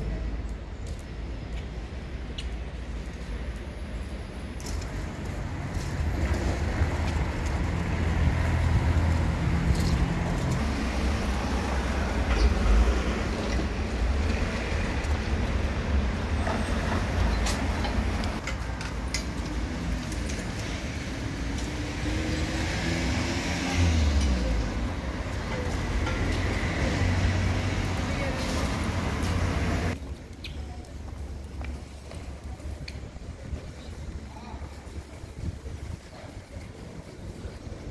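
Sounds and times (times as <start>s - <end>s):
cars driving past: 4.6s - 30.0s.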